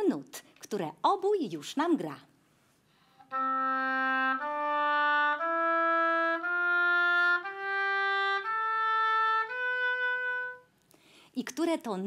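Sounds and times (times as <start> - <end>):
oboe playing a rising scale: 3.3 - 10.7.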